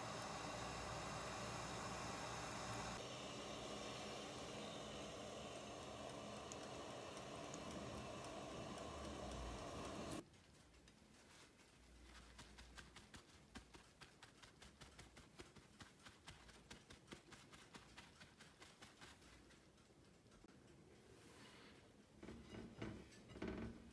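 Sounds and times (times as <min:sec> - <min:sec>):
pot of water boiling on stovetop: 0:00.0 - 0:10.2
paper towel dabbing: 0:00.0 - 0:19.5.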